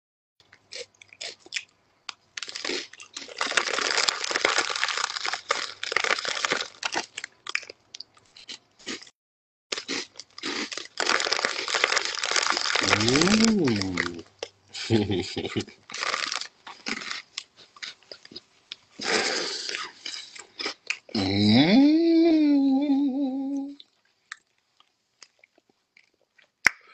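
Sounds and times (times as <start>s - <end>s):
chips being chewed: 0.4s - 9.1s, 9.7s - 14.5s, 15.9s - 21.3s, 23.8s - 26.8s
foil bag crinkling: 2.4s - 7.3s, 10.6s - 14.2s, 15.9s - 17.2s.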